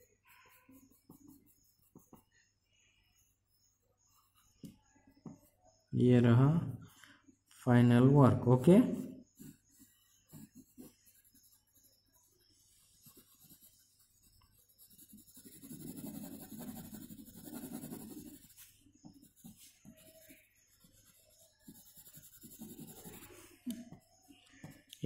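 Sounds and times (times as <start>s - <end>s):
pencil scratching on paper: 0.0s - 2.5s, 3.1s - 5.4s, 8.4s - 23.5s.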